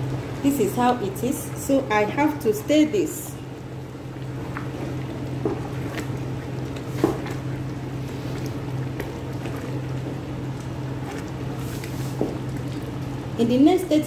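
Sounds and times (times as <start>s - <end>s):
steady low hum: 0.0s - 14.0s
thick soup squelching as stirred: 3.4s - 13.2s.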